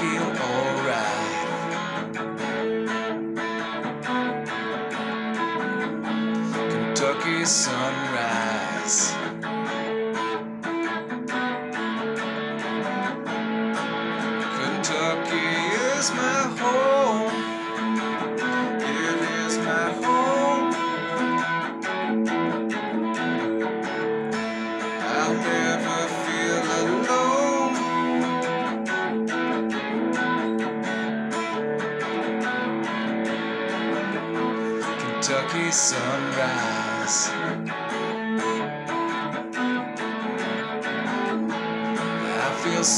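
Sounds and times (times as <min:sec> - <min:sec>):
electric guitar playing: 0:00.0 - 0:42.9.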